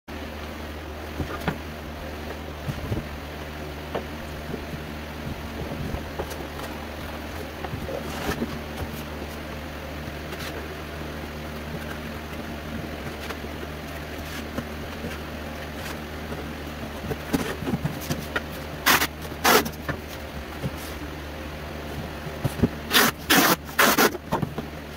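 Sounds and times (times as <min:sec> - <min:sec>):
steady low hum: 0:00.1 - 0:24.9
packing tape screeching: 0:18.8 - 0:19.8, 0:22.9 - 0:24.4.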